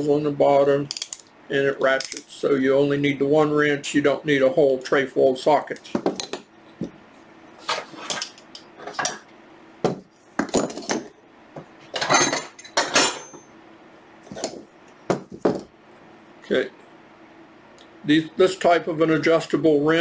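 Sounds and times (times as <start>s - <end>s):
metal wrenches clanking: 12.0s - 13.4s.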